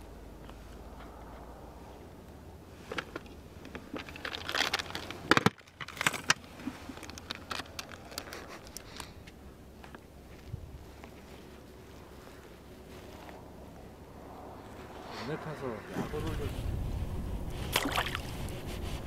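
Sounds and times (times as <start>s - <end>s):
fishing gear clicks and rustling: 2.9s - 9.4s.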